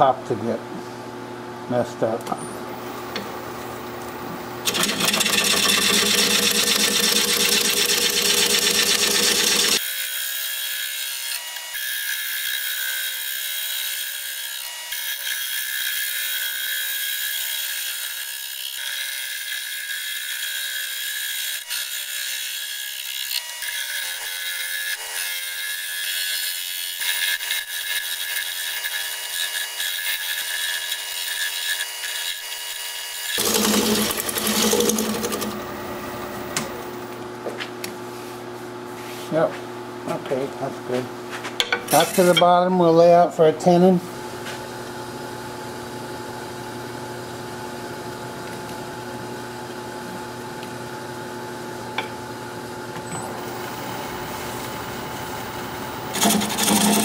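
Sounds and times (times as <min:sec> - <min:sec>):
lathe tool scraping wood: 0:04.6 - 0:09.9, 0:27.0 - 0:37.0, 0:41.9 - 0:42.6, 0:56.0 - 0:57.0
wood lathe running: 0:04.6 - 0:11.1, 0:26.7 - 0:37.1, 0:53.4 - 0:57.0.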